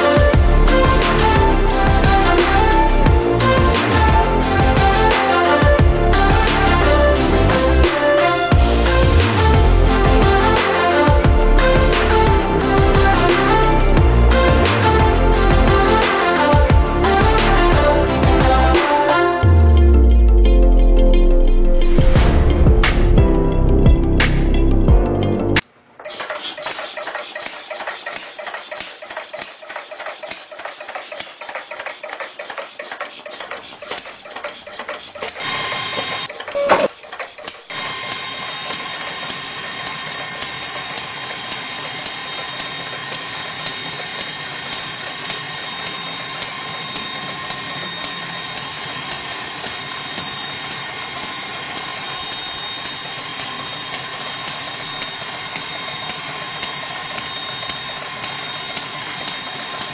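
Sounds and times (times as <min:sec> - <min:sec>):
small motor high whine: 0:00.0 - 0:20.3, 0:34.4 - 0:59.9
small motor clicking rattle: 0:26.0 - 0:59.9.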